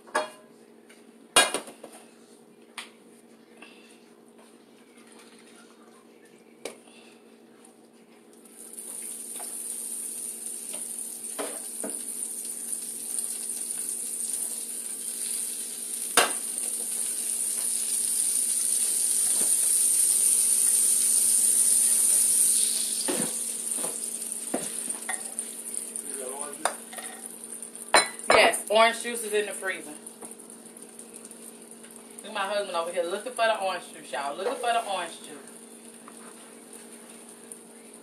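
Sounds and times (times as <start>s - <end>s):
butter sizzling in a frying pan: 8.4s - 37.6s
egg poured into pan: 8.6s - 26.3s.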